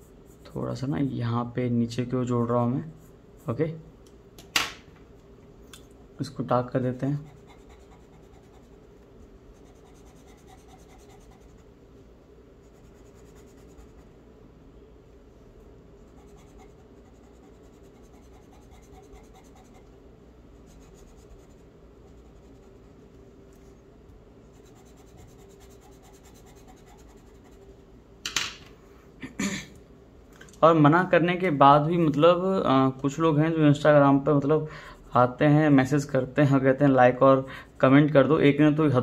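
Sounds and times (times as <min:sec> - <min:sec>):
steady low hum: 0:00.0 - 0:39.0
charcoal scratching on paper: 0:07.2 - 0:08.9, 0:09.5 - 0:11.7, 0:12.6 - 0:14.1, 0:16.0 - 0:19.9, 0:20.6 - 0:23.0, 0:24.5 - 0:27.7.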